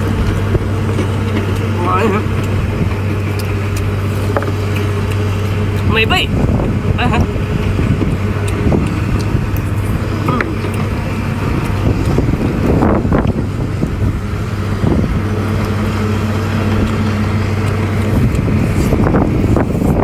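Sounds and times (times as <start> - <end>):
low engine hum: 0.0 - 20.0
chewing: 0.2 - 5.8, 8.0 - 14.0, 15.2 - 19.1.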